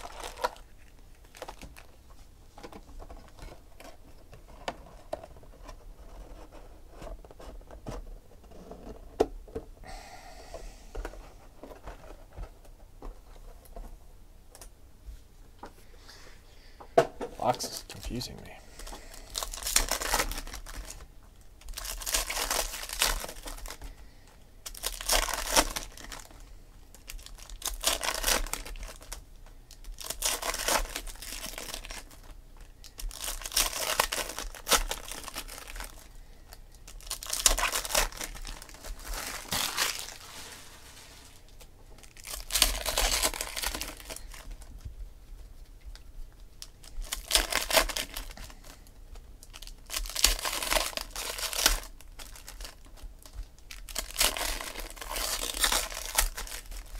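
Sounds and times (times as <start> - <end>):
foil wrappers crinkling and tearing: 0.0 - 2.1, 17.4 - 56.9.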